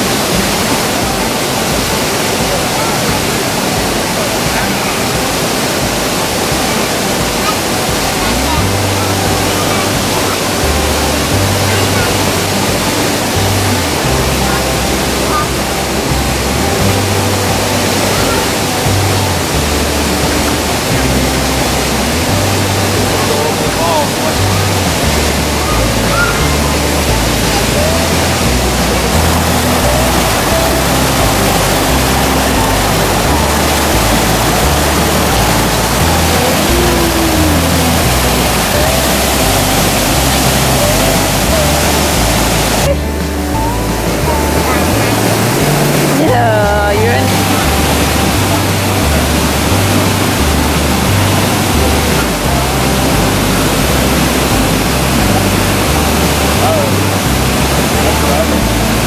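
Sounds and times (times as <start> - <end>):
background music with bassline: 0.0 - 59.0
stream flowing over rocks: 0.0 - 59.0.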